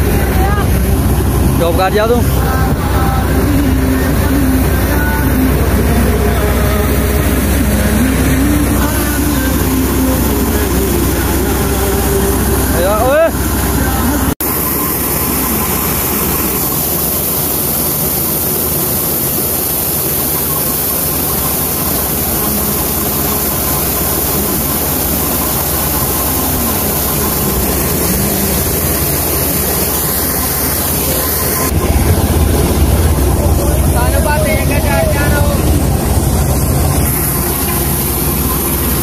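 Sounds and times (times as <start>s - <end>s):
thresher whirring: 0.0s - 39.0s
tractor diesel engine under load: 0.0s - 39.0s.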